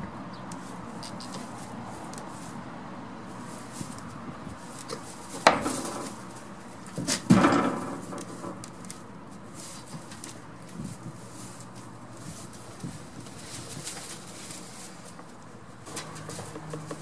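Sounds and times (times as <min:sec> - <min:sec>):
goat knocking on wooden boards: 0:15.9 - 0:17.0.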